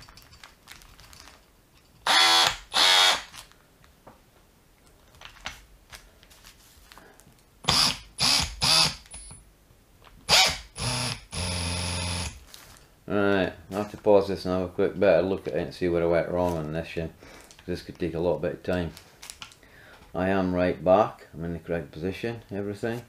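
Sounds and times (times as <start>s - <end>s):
cordless drill motor bursts: 2.0s - 3.3s, 7.6s - 9.1s, 10.3s - 12.4s.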